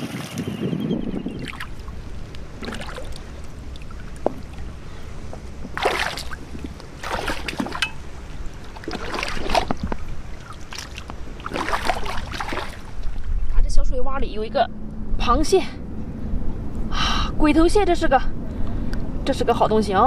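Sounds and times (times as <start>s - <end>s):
seawater splashing and sloshing: 0.0s - 13.5s
low steady rumble: 0.8s - 20.0s.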